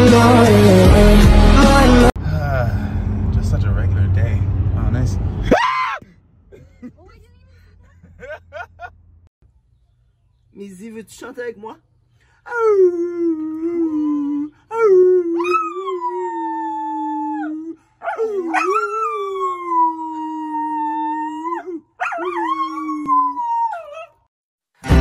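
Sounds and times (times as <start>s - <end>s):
man howling: 12.5s - 24.2s
dog howling: 12.5s - 24.3s.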